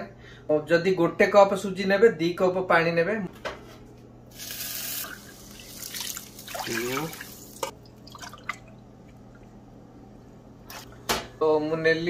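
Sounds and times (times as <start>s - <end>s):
water pouring and splashing: 4.4s - 9.4s.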